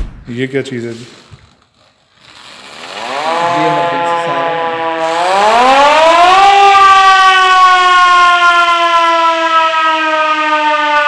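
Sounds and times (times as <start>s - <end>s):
hand-cranked siren wailing: 2.3s - 11.0s.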